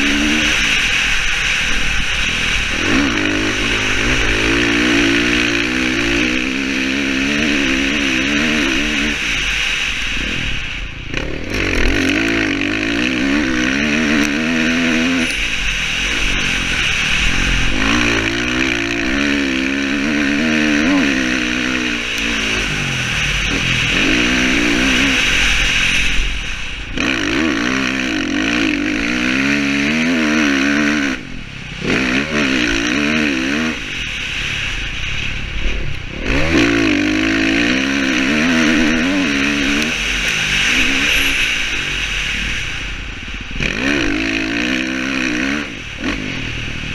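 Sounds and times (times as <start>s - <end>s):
dirt bike engine revving: 0.0s - 46.9s.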